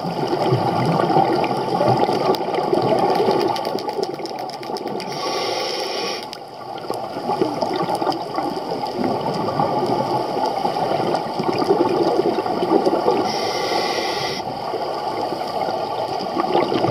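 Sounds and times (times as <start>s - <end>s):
regulator bubbling underwater: 0.0s - 16.9s
regulator inhale hiss: 5.0s - 6.4s, 13.2s - 14.5s.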